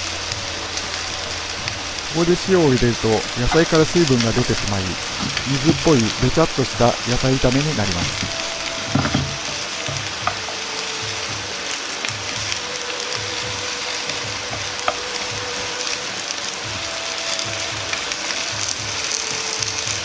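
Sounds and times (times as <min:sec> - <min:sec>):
vegetables sizzling in a frying pan: 0:00.0 - 0:20.0
chopsticks clicking against pan: 0:07.5 - 0:15.4.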